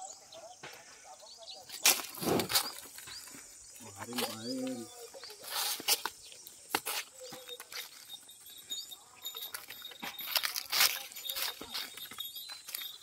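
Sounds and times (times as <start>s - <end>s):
small birds chirping: 0.0s - 13.0s
footsteps crunching on dry leaves: 1.7s - 8.2s, 9.3s - 13.0s.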